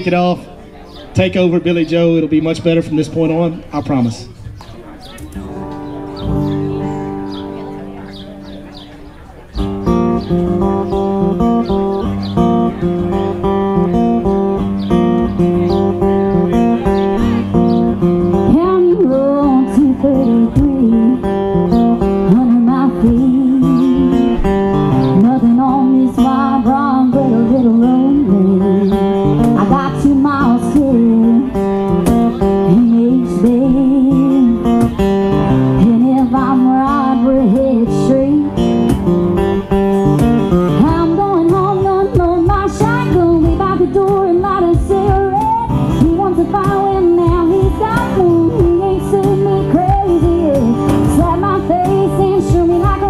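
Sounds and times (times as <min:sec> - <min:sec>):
strummed acoustic guitar: 0:00.0 - 0:53.0
woman singing: 0:18.4 - 0:21.3, 0:22.2 - 0:24.4, 0:25.1 - 0:31.6, 0:32.6 - 0:34.8, 0:35.7 - 0:38.6, 0:40.8 - 0:53.0.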